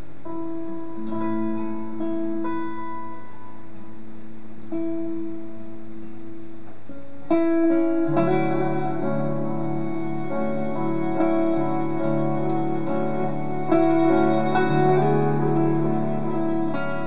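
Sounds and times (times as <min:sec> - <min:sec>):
acoustic guitars: 0:00.0 - 0:17.0
violin: 0:07.3 - 0:17.0
bowed cello: 0:08.1 - 0:17.0.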